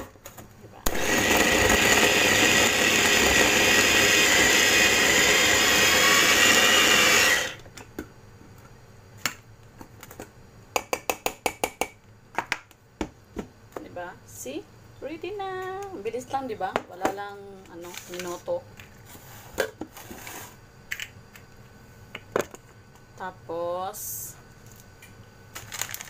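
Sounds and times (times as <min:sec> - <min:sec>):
electric food chopper motor: 0:00.9 - 0:07.6.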